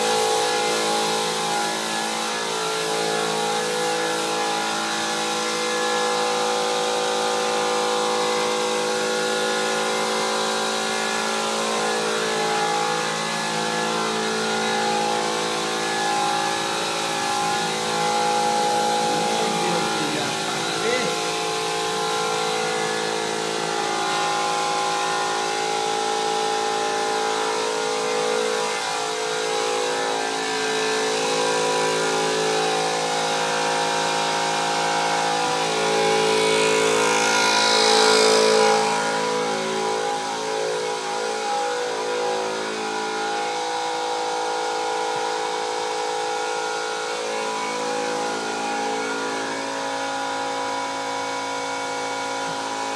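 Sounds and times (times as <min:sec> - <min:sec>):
motor running steadily: 0:00.0 - 0:52.9
loud hiss: 0:18.6 - 0:21.3.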